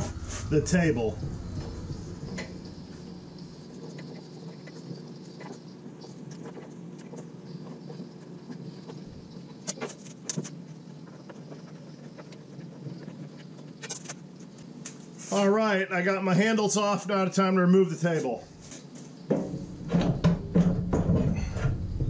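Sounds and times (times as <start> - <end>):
low machine hum: 0.0 - 6.0, 19.6 - 22.0.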